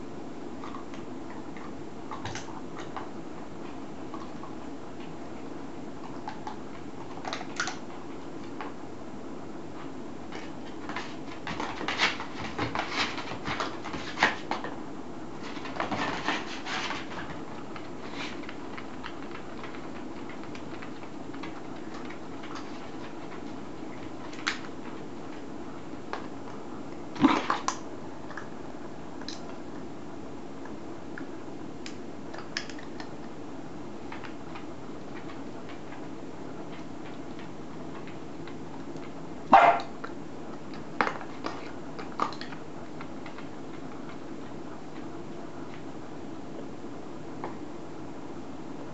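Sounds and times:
steady low hum: 0.0 - 48.9
dog paws on tatami: 9.8 - 26.6, 34.0 - 45.9.

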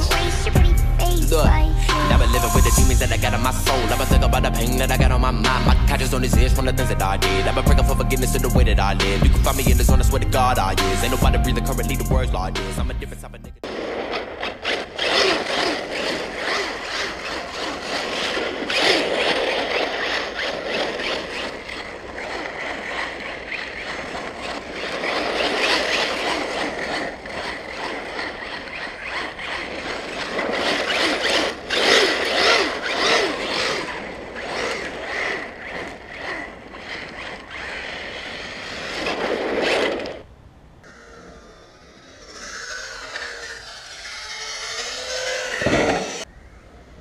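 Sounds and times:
electric motor whine: 0.0 - 13.0, 13.6 - 46.3
tyres scrabbling on stony dirt: 13.6 - 40.3.

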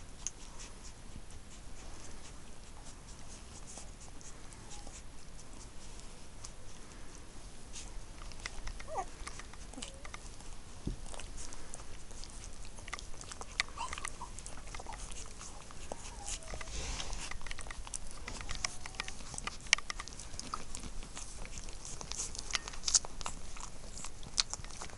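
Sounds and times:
puppies suckling wet clicks: 0.0 - 24.9
puppy squeaks: 8.8 - 10.2, 13.6 - 19.6.

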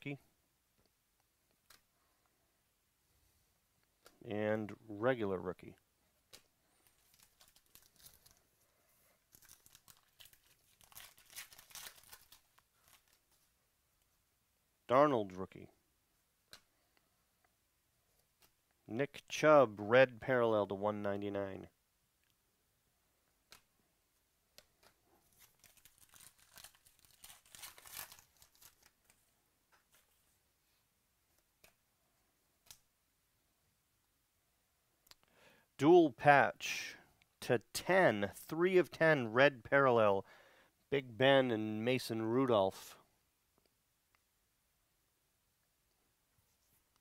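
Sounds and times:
wrapper being torn and crinkled: 6.8 - 8.4, 9.3 - 13.3, 25.3 - 29.2.

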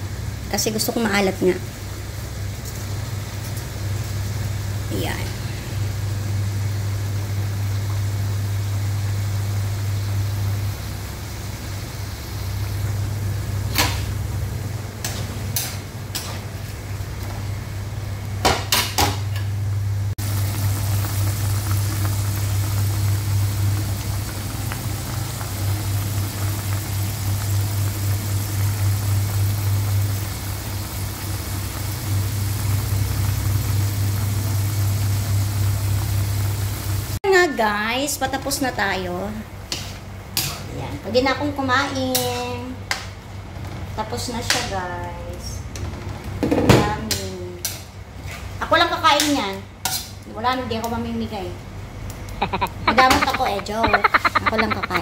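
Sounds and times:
sauce simmering hiss: 0.0 - 14.9, 20.2 - 37.2, 52.2 - 55.0.

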